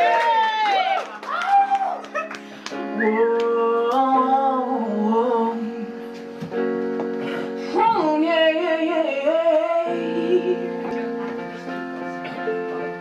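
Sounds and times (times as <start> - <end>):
woman singing into microphone: 2.9 - 6.1, 7.3 - 11.2.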